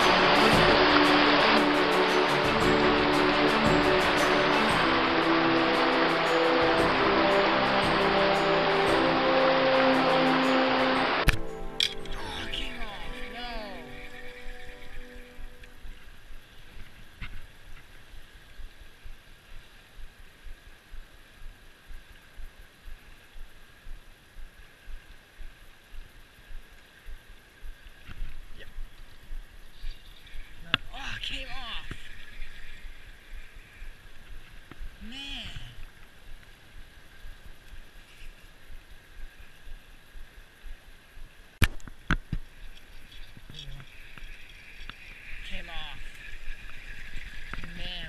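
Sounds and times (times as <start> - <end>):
fast-flowing river rushing: 0.0 - 22.9
water rushing over rocks: 0.0 - 48.0.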